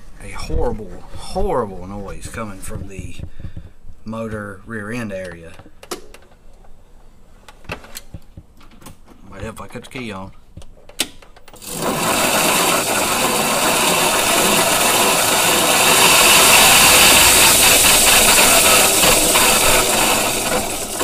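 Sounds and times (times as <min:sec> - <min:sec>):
golf cart harsh mechanical racket: 0:11.6 - 0:21.0.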